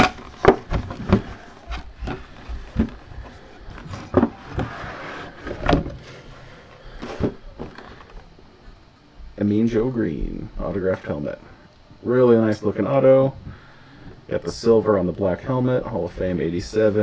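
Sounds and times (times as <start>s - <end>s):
plastic case scraping: 0.0s - 8.3s.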